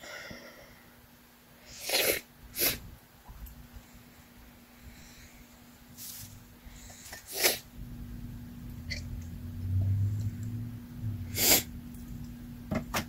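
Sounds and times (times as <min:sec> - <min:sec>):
sneeze-like nasal snorts: 0:01.7 - 0:02.8, 0:07.2 - 0:07.7, 0:11.3 - 0:11.7.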